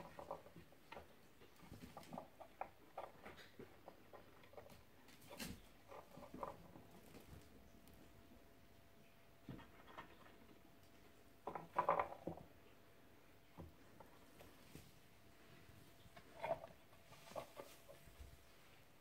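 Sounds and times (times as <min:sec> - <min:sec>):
kittens scuffling on a blanket: 0:14.1 - 0:19.0.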